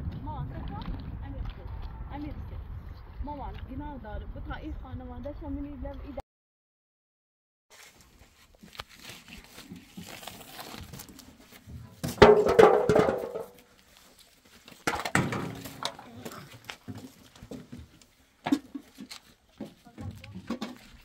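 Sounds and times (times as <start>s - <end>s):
crackling rustling noise: 7.7s - 12.2s, 13.3s - 14.9s.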